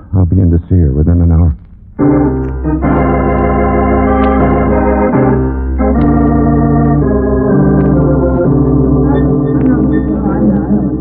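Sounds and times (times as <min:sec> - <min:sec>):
organ chords: 0:00.0 - 0:11.0.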